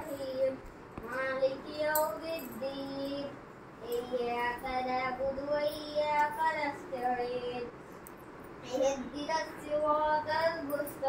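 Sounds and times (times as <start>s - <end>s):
child chanting melodically: 0.0s - 7.7s.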